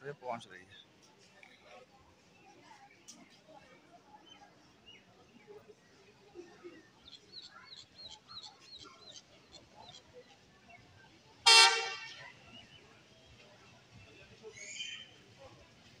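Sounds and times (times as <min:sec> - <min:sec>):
faint platform background: 0:00.0 - 0:16.0
locomotive air horn: 0:11.5 - 0:12.2.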